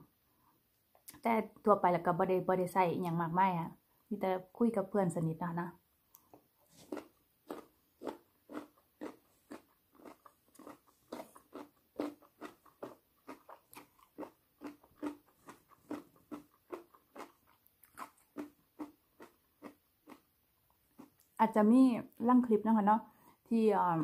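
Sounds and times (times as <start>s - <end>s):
person chewing crunchy food: 6.1s - 21.4s.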